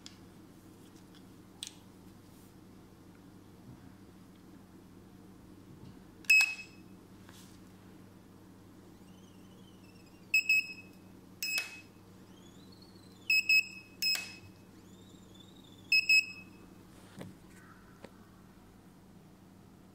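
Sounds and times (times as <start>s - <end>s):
steady low hum: 0.0s - 19.9s
printer beeping: 9.0s - 16.7s.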